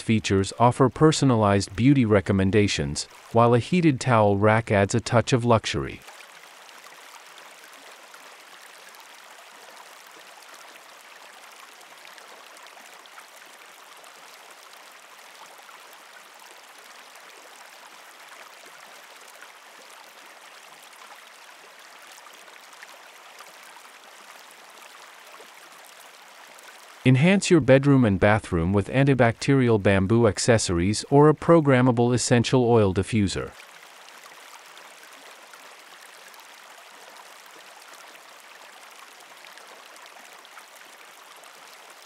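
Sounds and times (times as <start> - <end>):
gently running stream water: 0.0 - 42.0.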